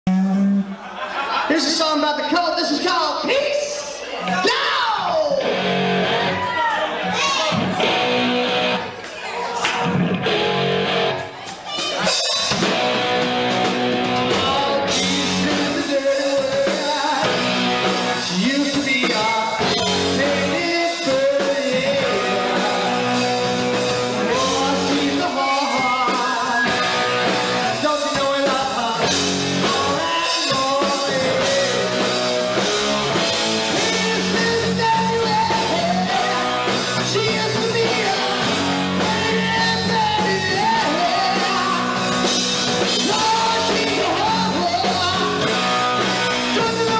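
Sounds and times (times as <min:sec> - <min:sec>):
bass guitar: 0:00.0 - 0:00.9, 0:04.2 - 0:09.0, 0:09.7 - 0:46.9
drums: 0:00.1 - 0:46.9
electric guitars: 0:03.9 - 0:46.9
man singing into a microphone: 0:14.2 - 0:17.5, 0:18.2 - 0:32.8, 0:33.6 - 0:46.9.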